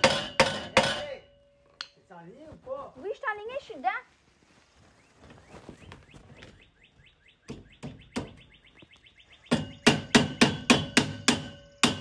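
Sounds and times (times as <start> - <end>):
hammer striking steel frame: 0.0 - 1.9, 9.5 - 12.0
metal ringing: 9.5 - 12.0.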